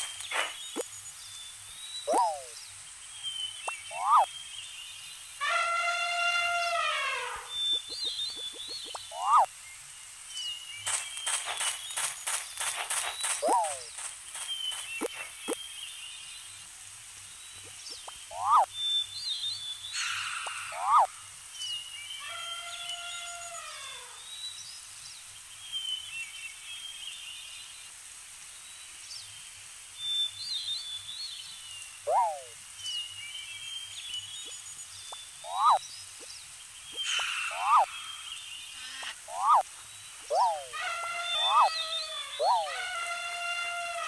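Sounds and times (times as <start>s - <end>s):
birds chirping: 0.0s - 9.7s, 10.3s - 16.6s, 17.4s - 24.6s, 30.0s - 44.0s
rising and falling bird call: 2.0s - 2.6s, 3.4s - 4.4s, 5.4s - 9.5s, 10.9s - 15.6s, 17.6s - 19.0s, 19.9s - 24.3s, 32.0s - 32.6s, 35.4s - 35.8s, 36.9s - 44.0s
downward swooping bird calls: 2.1s - 2.6s, 18.3s - 18.7s, 32.1s - 32.6s, 35.4s - 35.8s, 37.0s - 39.6s, 40.3s - 44.0s.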